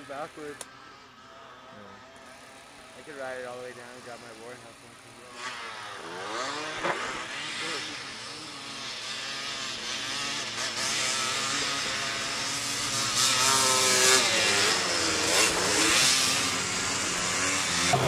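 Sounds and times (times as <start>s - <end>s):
snow quad engines revving: 0.0s - 18.0s.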